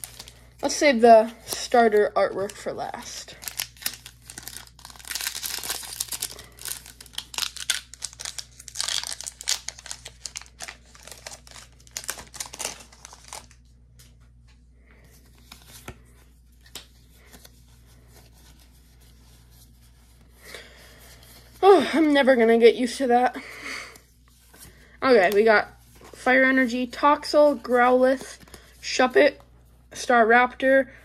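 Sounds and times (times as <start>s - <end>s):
foil wrapper tearing and crinkling: 0.0s - 0.5s, 2.4s - 13.6s.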